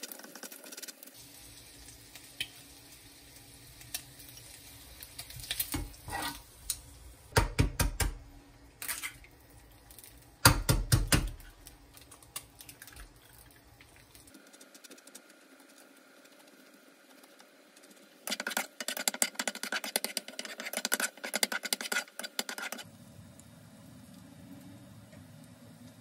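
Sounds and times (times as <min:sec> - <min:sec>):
bacon sizzling in a frying pan: 0:00.0 - 0:07.4
cutlery scraping a ceramic plate: 0:06.1 - 0:06.4.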